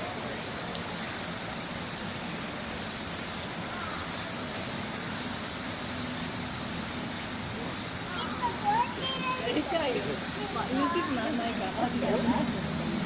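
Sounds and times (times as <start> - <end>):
insects calling: 0.0 - 13.0.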